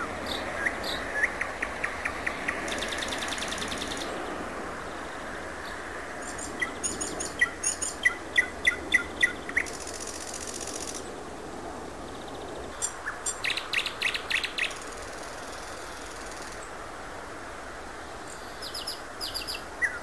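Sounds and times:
nightingale singing: 0.0 - 4.2, 5.6 - 11.0, 12.3 - 16.7, 18.3 - 20.0.

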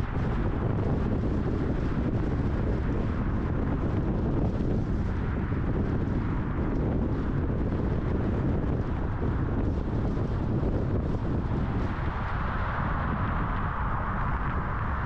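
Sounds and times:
car road and wind noise: 0.0 - 15.0.

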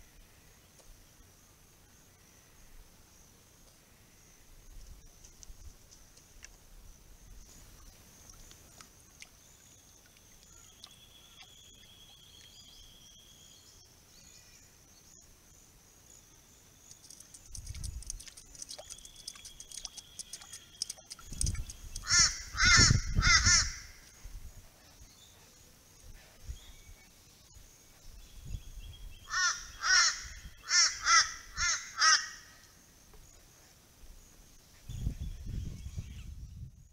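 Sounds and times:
crow cawing: 22.0 - 23.9, 29.3 - 32.4.

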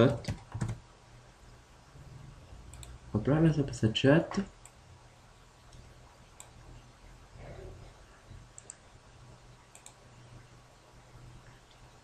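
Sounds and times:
low steady hum: 0.0 - 12.0
computer mouse clicks: 2.7 - 3.0, 6.4 - 6.6, 8.5 - 8.8, 9.7 - 10.0.

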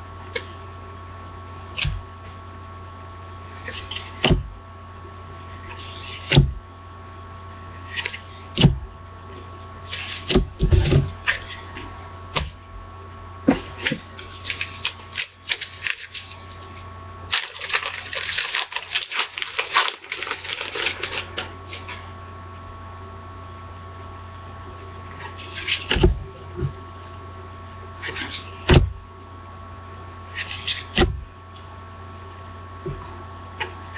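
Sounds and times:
electrical hum: 0.0 - 33.9
wrapper crinkling: 14.2 - 16.6, 17.3 - 22.0.

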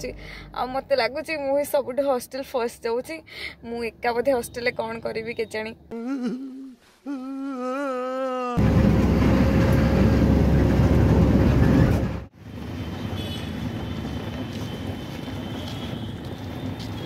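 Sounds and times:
road noise: 8.6 - 17.0.

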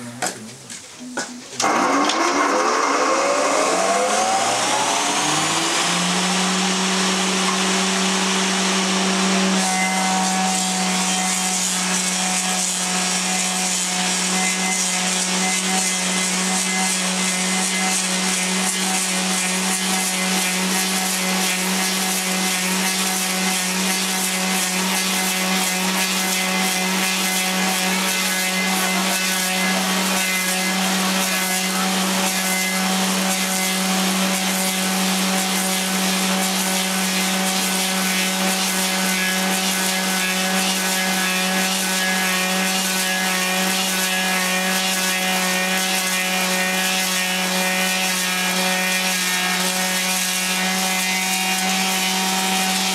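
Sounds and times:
cutter shaving wood: 0.0 - 52.9
lathe motor hum: 1.6 - 46.8.

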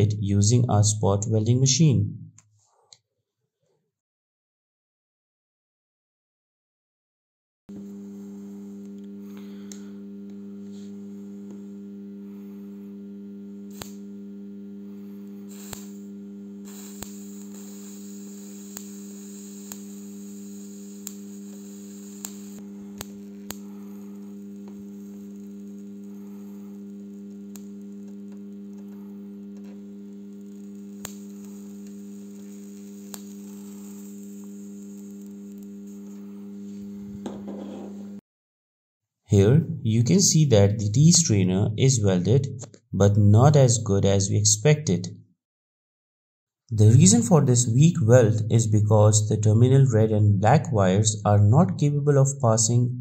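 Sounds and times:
spot welder humming: 7.7 - 38.2, 46.7 - 50.3
sharp sparking snaps: 13.6 - 14.2, 15.0 - 37.3.

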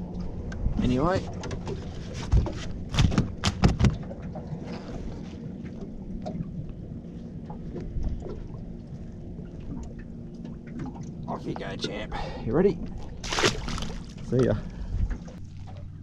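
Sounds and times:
wind and water rumble: 0.0 - 16.0
sharp knocks and clunks: 1.4 - 4.1.

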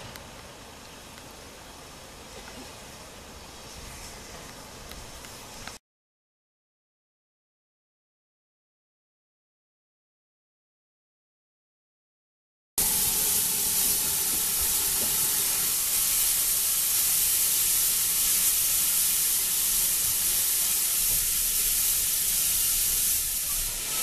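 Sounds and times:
steam locomotive hissing steam: 12.8 - 24.0.

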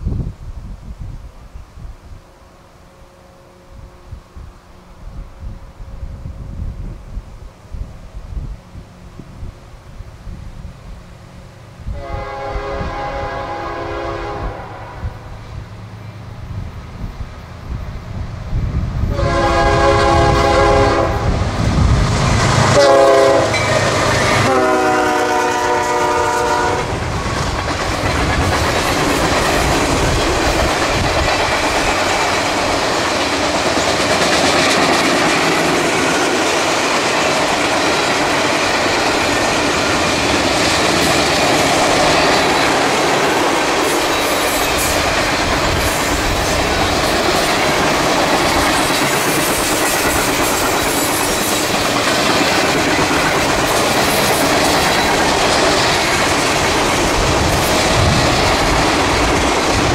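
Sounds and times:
locomotive horn blasts: 11.9 - 15.4, 19.1 - 21.4, 22.7 - 27.0
freight train wheels clattering: 19.2 - 59.9.

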